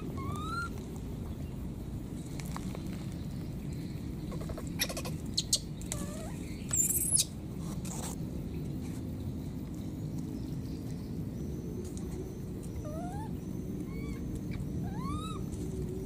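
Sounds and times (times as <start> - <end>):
baby monkey squeaking: 0.0 - 0.7, 4.3 - 7.3, 12.8 - 13.3, 13.9 - 15.5
low background noise: 0.0 - 16.0.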